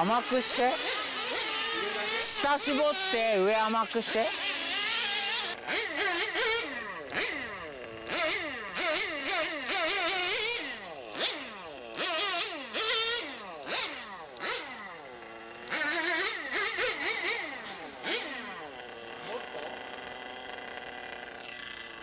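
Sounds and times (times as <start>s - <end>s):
nitro engine buzzing: 0.0s - 22.0s.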